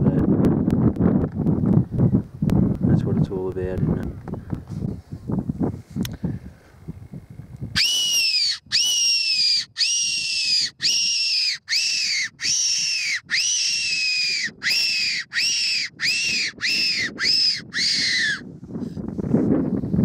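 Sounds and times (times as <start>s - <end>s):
shrill fox whistle notes: 7.8s - 18.4s.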